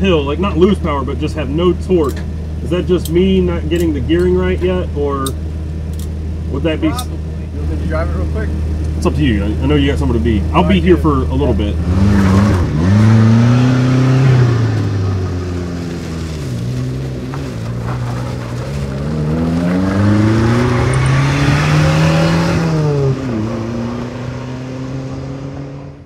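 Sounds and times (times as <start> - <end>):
small engine revving: 11.5 - 26.0.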